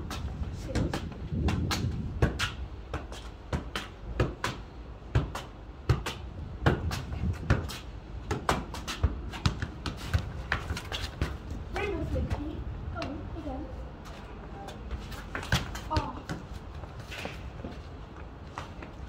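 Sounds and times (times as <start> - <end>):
football bouncing on concrete: 0.0 - 13.2, 14.9 - 19.0
shoes scuffing on slabs: 14.0 - 19.0.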